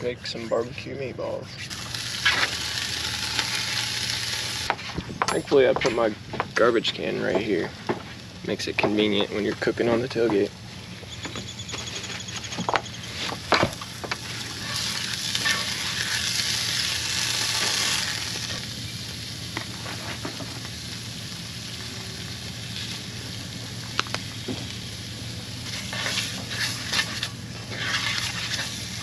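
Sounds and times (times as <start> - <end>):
meatballs sizzling in a pan: 1.7 - 4.7, 13.4 - 29.0.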